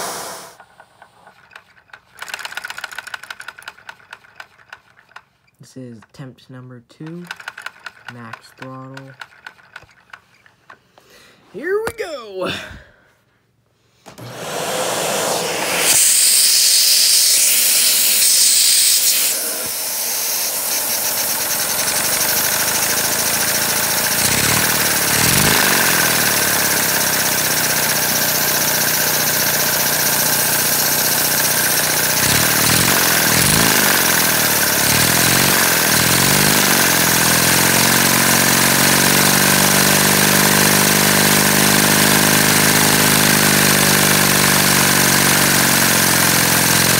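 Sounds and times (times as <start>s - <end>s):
loud hiss: 0.0s - 0.6s, 14.8s - 21.5s
plastic engine clattering: 0.6s - 6.2s, 7.0s - 10.9s.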